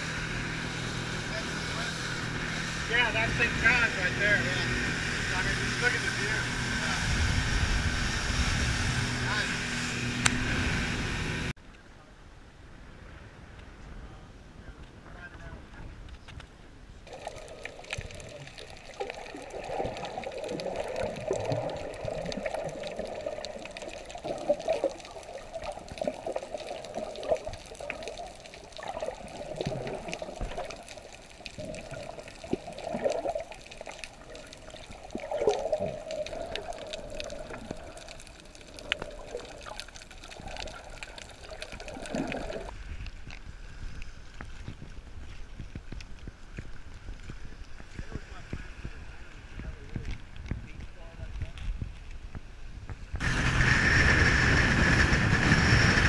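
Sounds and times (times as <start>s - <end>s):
open-air sound: 0.0s - 24.3s
muffled underwater swishing and bubbling: 17.1s - 56.0s.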